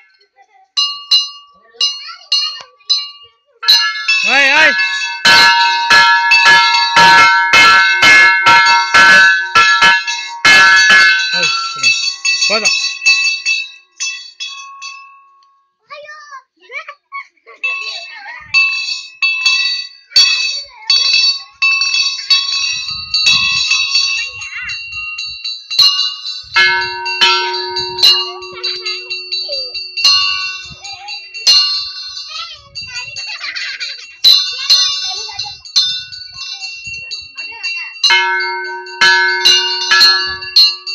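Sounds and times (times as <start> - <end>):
brass temple bells ringing: 3.0 - 15.0, 25.8 - 32.3, 38.0 - 40.9.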